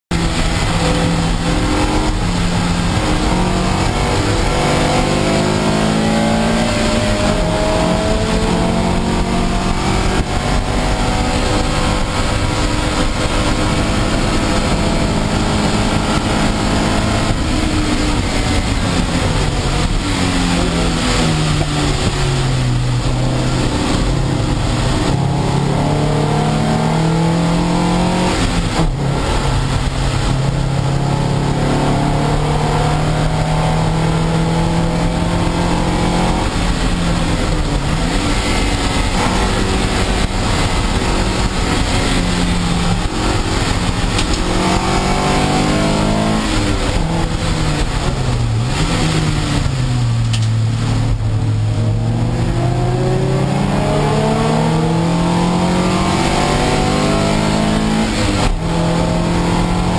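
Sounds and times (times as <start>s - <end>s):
race car engine revving: 0.1s - 59.9s.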